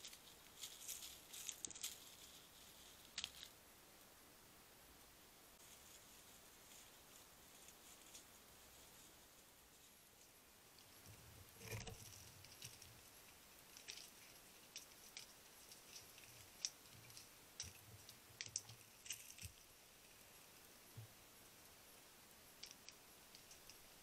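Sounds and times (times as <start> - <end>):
brief rustle: 0.0 - 3.6
crackling of dry leaf litter: 0.0 - 3.6, 5.6 - 21.3.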